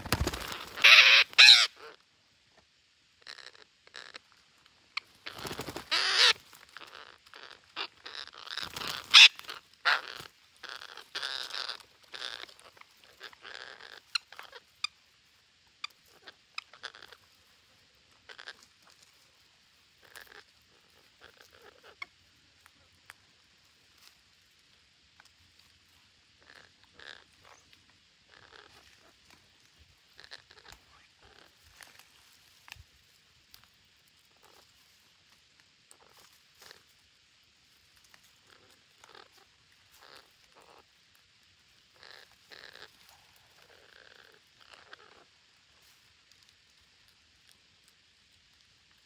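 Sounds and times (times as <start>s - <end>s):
parakeets screeching: 0.0s - 2.0s, 5.2s - 14.6s, 42.0s - 42.9s.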